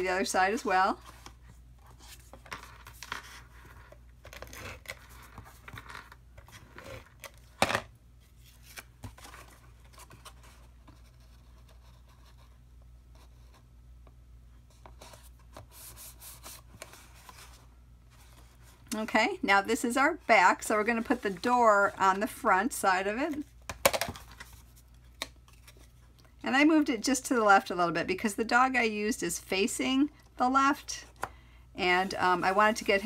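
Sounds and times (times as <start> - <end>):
cardstock rustling and scraping: 20.7 - 22.5.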